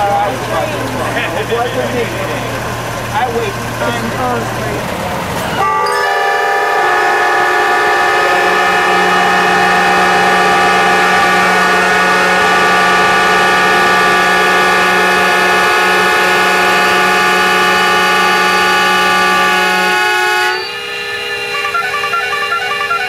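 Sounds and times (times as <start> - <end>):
locomotive whistles and horns: 5.4 - 23.0
low horn: 5.6 - 23.0.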